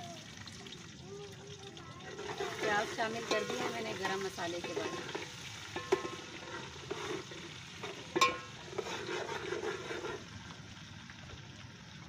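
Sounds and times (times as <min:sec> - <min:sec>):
onions frying in oil: 0:00.0 - 0:12.0
ladle scraping in a pot: 0:02.1 - 0:10.4
ladle clinking against pot: 0:02.2 - 0:06.6, 0:07.8 - 0:08.9.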